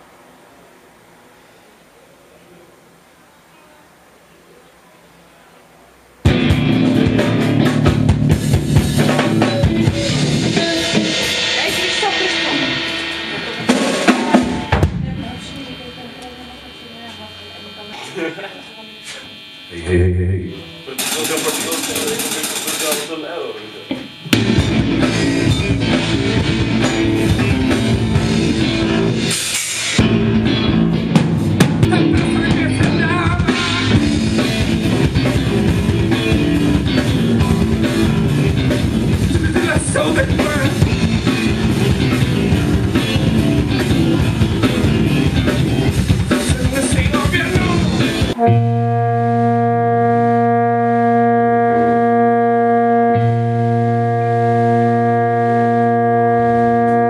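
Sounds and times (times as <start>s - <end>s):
bass guitar: 6.2s - 16.2s, 23.9s - 57.0s
drum kit: 6.2s - 16.2s, 20.6s - 23.2s, 23.9s - 57.0s
drone of held notes: 6.2s - 29.4s, 47.5s - 57.0s
electric guitar: 6.2s - 57.0s.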